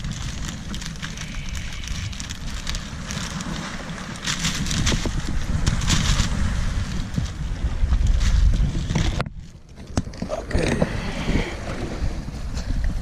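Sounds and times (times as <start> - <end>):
plastic bag crinkling: 0.0 - 7.0
wind rumbling on microphone: 0.0 - 13.0.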